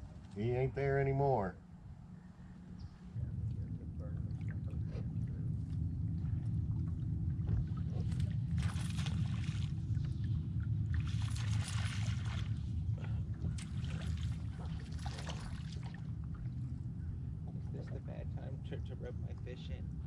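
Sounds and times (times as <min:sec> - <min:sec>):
steady low hum: 0:00.0 - 0:20.0
water splashing along boat hull: 0:04.2 - 0:17.8.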